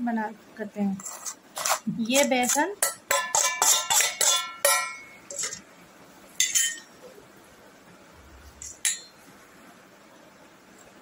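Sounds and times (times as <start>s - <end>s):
steel spoon clinking against bowl: 2.4s - 5.6s, 6.4s - 6.9s, 8.6s - 9.2s.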